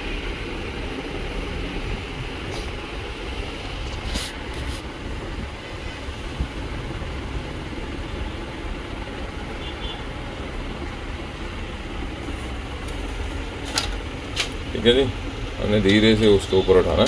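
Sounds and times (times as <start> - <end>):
low background rumble: 0.0 - 16.2.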